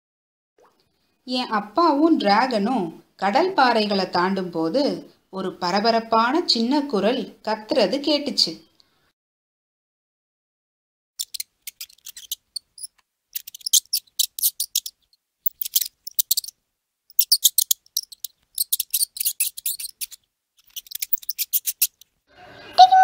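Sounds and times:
mouse squeaking: 11.2s - 22.0s.

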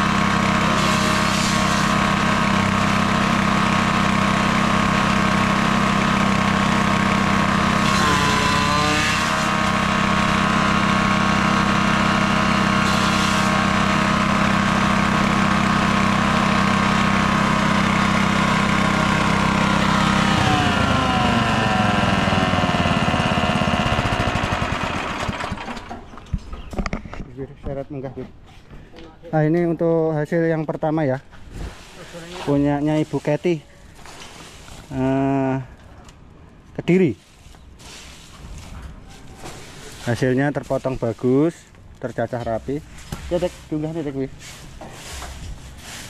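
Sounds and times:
machine spinning down: 0.0s - 25.9s
grass chopper engine running: 0.0s - 26.1s.

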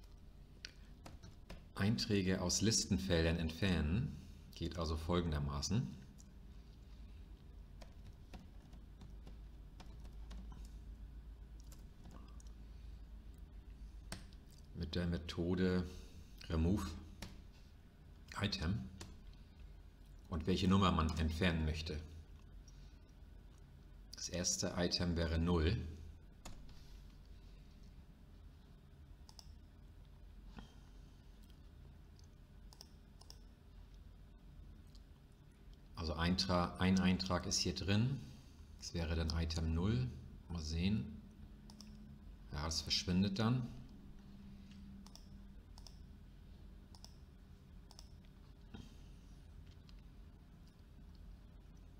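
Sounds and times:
low steady hum: 0.0s - 51.9s
keyboard typing: 7.8s - 10.8s, 11.6s - 12.6s, 45.0s - 46.0s, 46.9s - 47.2s, 47.8s - 48.2s
computer mouse clicks: 29.2s - 29.6s, 32.2s - 34.0s, 41.7s - 42.0s, 44.7s - 46.1s, 46.9s - 48.3s.

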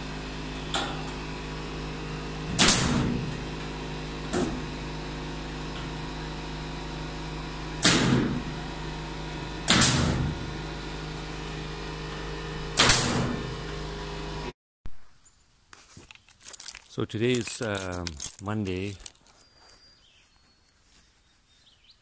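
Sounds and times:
nail gun firing: 2.5s - 3.2s, 7.8s - 8.4s, 9.6s - 10.4s, 12.8s - 13.4s.

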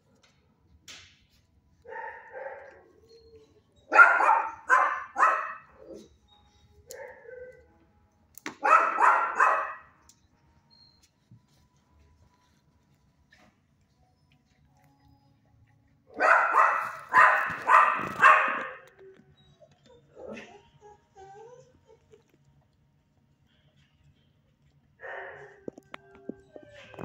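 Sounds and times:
dog barking: 1.9s - 2.8s, 3.9s - 6.1s, 6.9s - 7.6s, 8.6s - 10.0s, 16.1s - 18.9s, 25.0s - 25.7s.

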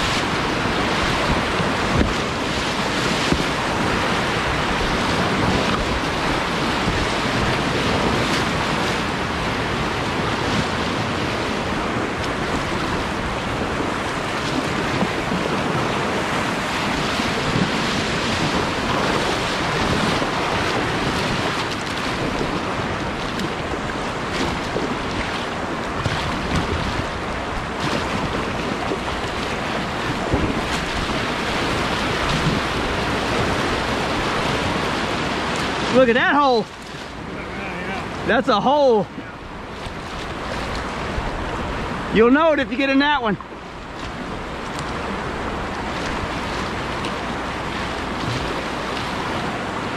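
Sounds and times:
whitewater rapids rushing: 0.0s - 49.9s.

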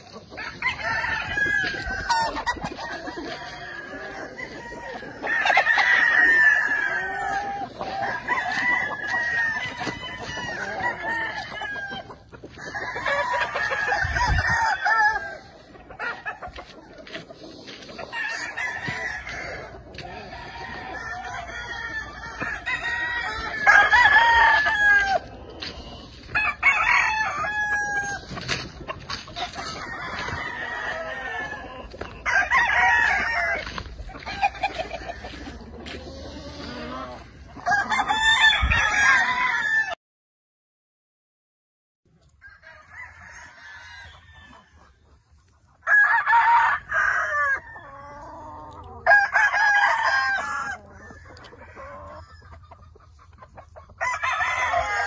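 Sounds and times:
roosters crowing: 0.0s - 40.0s, 42.4s - 45.0s, 45.8s - 55.0s.

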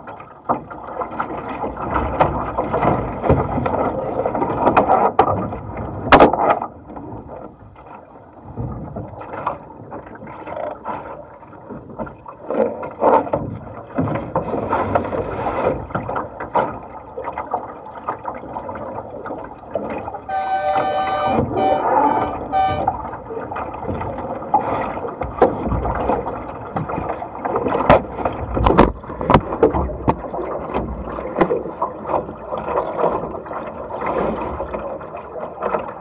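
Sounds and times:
water slapping against boat hull: 0.0s - 36.0s
horn blasts: 20.2s - 23.1s.

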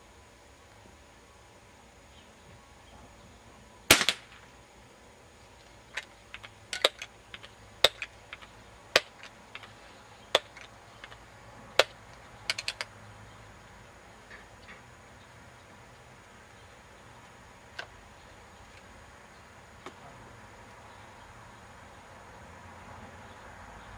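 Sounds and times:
air pistol shot: 3.9s - 4.4s.

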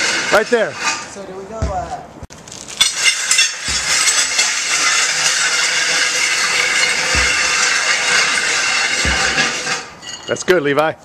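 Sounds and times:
weight plates clinking: 2.8s - 10.6s
dull low thumps: 7.0s - 7.9s, 9.0s - 9.6s.

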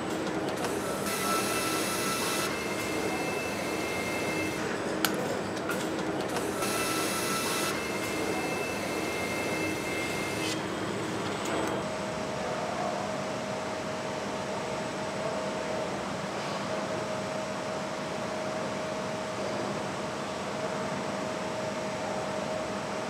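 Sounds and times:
low factory hum: 0.0s - 23.0s.

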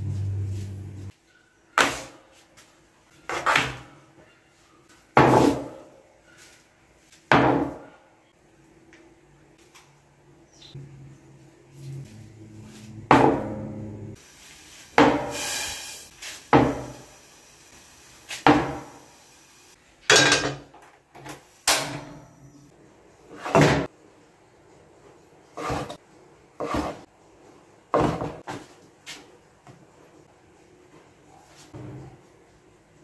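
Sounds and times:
kitchen utensils clattering: 20.1s - 20.9s.

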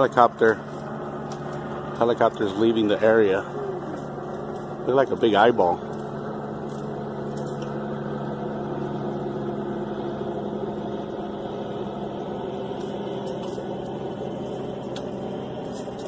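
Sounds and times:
engine humming: 0.0s - 16.0s.

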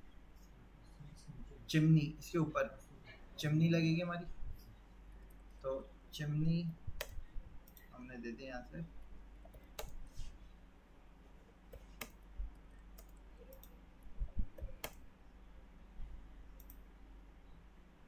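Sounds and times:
low steady hum: 0.0s - 18.0s
mouse and keyboard clicks: 9.4s - 10.0s.

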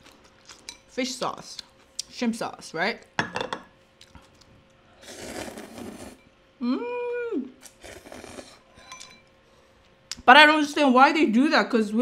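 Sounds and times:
noodles slurped: 5.0s - 6.2s, 7.6s - 8.6s.

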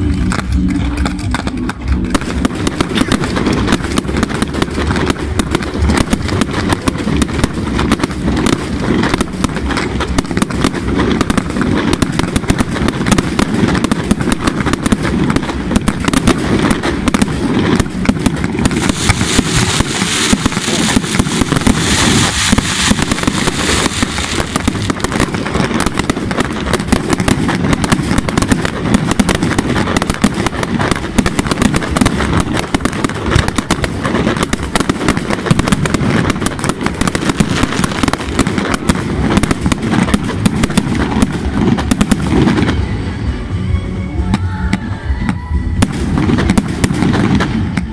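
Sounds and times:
firework shell bursts: 2.2s - 41.2s
hissing spark fountains: 11.5s - 40.4s.

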